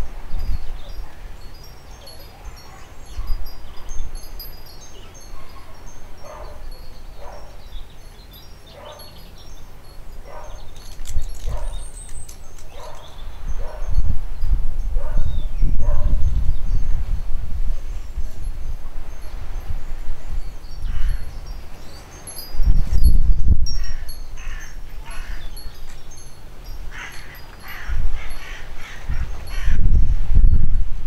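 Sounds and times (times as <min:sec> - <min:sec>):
wind buffeting microphone: 0:00.0 - 0:31.0
wind chimes tinkling: 0:00.0 - 0:31.0
puppies yipping: 0:12.7 - 0:13.9.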